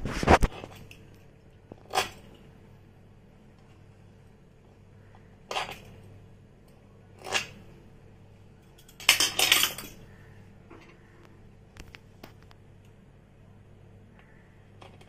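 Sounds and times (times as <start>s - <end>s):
kitchen utensil scraping: 1.8s - 2.4s, 5.5s - 6.0s, 7.2s - 7.6s, 8.8s - 10.0s
clinking in kitchen: 8.7s - 10.0s.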